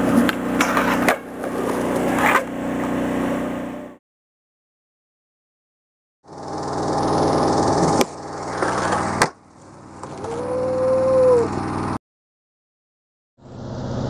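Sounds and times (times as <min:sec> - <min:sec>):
skateboard wheels rolling on concrete: 0:00.0 - 0:03.8, 0:06.6 - 0:10.4
skateboard clacks: 0:00.1 - 0:02.5, 0:08.0 - 0:09.4.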